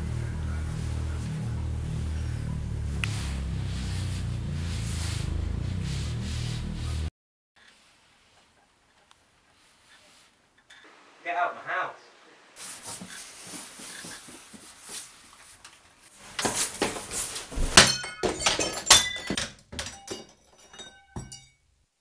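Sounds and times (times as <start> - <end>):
thuds and clattering crashes: 16.4 - 21.5.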